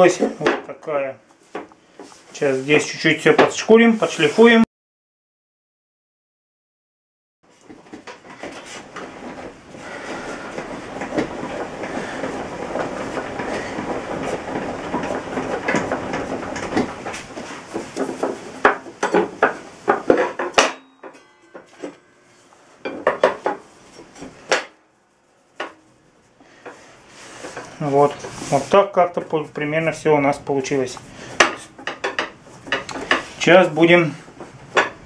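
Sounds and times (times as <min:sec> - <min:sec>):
sharp clacks and knocks: 0:07.6 - 0:22.1, 0:22.9 - 0:24.8, 0:31.0 - 0:33.3.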